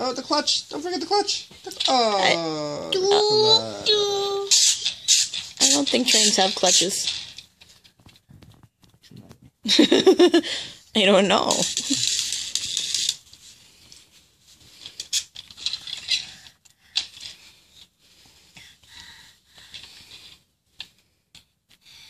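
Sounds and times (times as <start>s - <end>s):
toy scraping and rustling on pillow: 3.0s - 8.5s, 11.4s - 16.5s.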